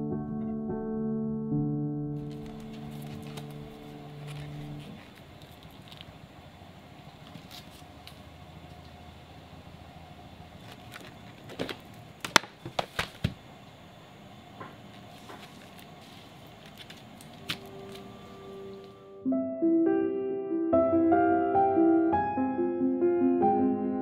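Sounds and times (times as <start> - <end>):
paint tubes being handled: 2.2 - 6.2, 7.0 - 9.0, 10.5 - 13.4, 14.6 - 18.9.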